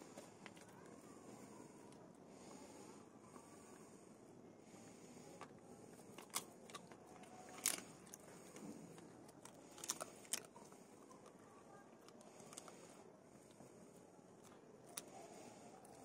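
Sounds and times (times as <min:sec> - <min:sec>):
teeth and jaw clicks: 0:05.4 - 0:11.4
dog chewing and tearing bread: 0:06.0 - 0:11.3.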